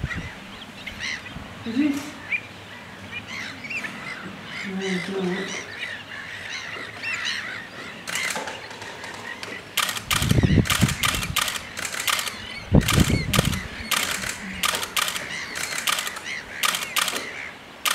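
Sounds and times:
camera shutter clicks: 8.1 - 8.7, 9.4 - 17.9
low rumbles: 9.3 - 16.8.

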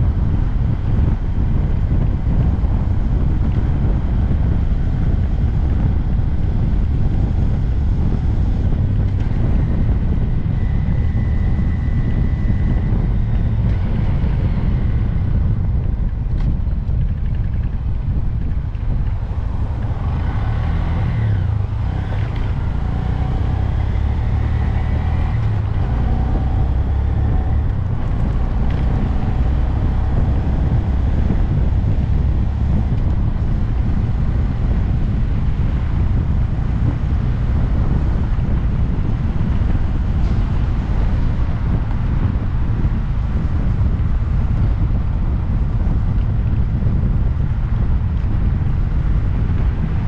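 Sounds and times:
motorcycle engine running: 0.0 - 50.0
wind noise on microphone: 0.0 - 50.0.

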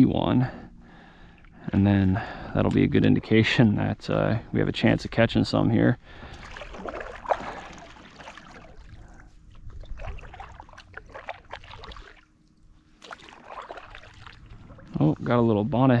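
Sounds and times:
water splashing: 6.1 - 15.4
kayak paddle strokes in water: 6.1 - 15.5
water dripping off paddle: 10.0 - 14.9.

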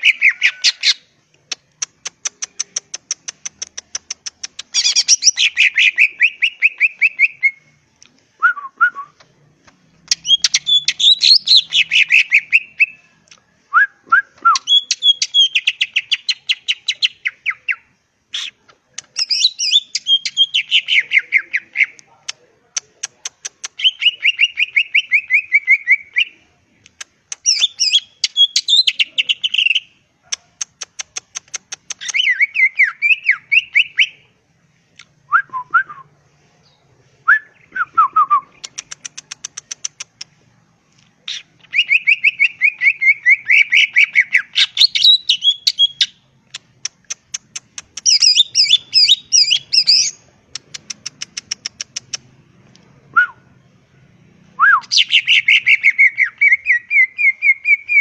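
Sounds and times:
bird singing rapid stuttering phrases: 0.0 - 7.6, 9.6 - 13.0, 14.6 - 22.0, 22.8 - 26.3, 27.0 - 34.2, 38.5 - 40.4, 41.2 - 52.3, 54.3 - 58.0.

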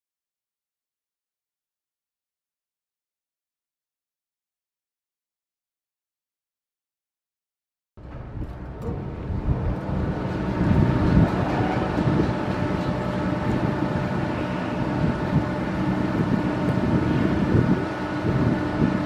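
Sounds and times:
steady droning hum: 8.0 - 19.0
wind buffeting microphone: 8.0 - 19.0.

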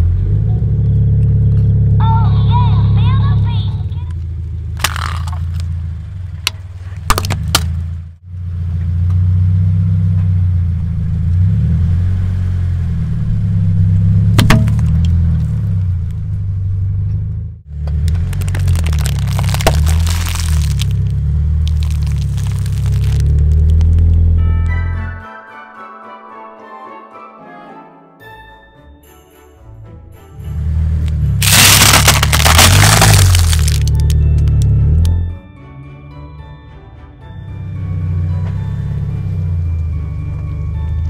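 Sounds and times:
car engine running: 0.0 - 24.4, 30.5 - 35.4
objects cracking under tyre: 4.7 - 8.0, 14.4 - 15.6, 17.7 - 24.4, 31.1 - 35.1.

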